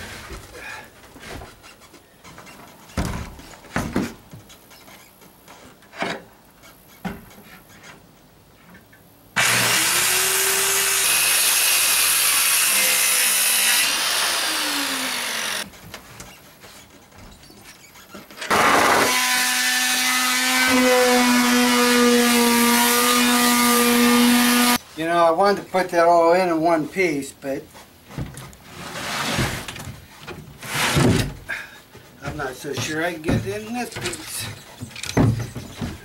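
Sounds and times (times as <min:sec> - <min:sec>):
saw motor hum: 0:09.4 - 0:15.6
electric saw cutting plywood: 0:09.4 - 0:15.7, 0:18.5 - 0:24.8.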